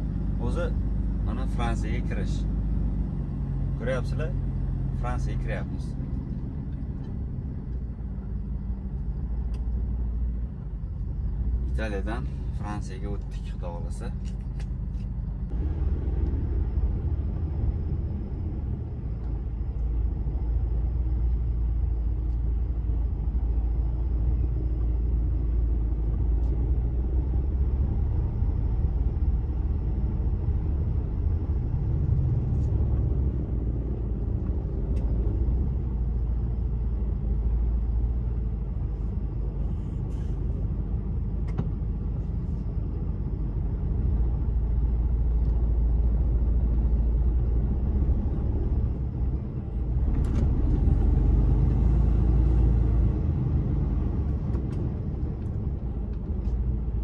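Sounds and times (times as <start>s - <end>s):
truck engine rumble: 0.0s - 57.0s.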